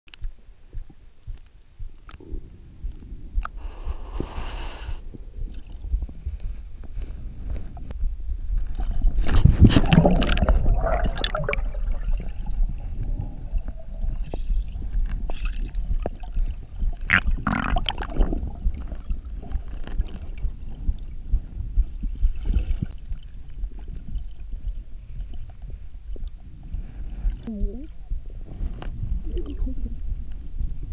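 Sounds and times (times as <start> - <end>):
muffled underwater rumble: 0.1 - 30.9
water splashing and gurgling: 8.6 - 30.8.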